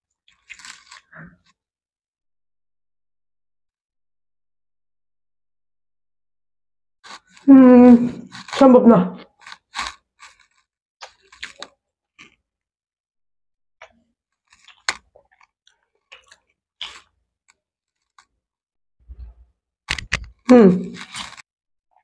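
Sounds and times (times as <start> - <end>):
people chewing and crunching pizza: 0.3 - 1.6, 8.1 - 8.6, 9.2 - 12.4, 13.8 - 17.2, 19.1 - 21.4.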